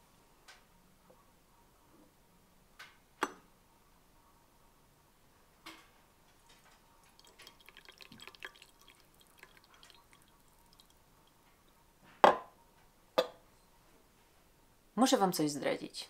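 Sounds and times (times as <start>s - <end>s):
tea trickling into cup: 6.5s - 11.7s
glass teapot knocking on table: 12.2s - 12.5s.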